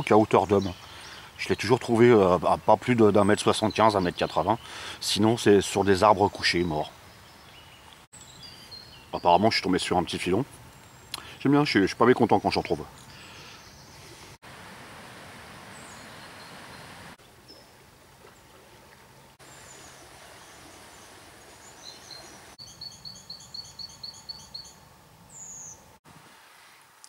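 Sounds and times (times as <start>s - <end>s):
faint leaves rustling: 0.0s - 27.0s
short high bird chirps: 21.8s - 24.8s
songbird singing two-pitched notes: 21.8s - 25.8s.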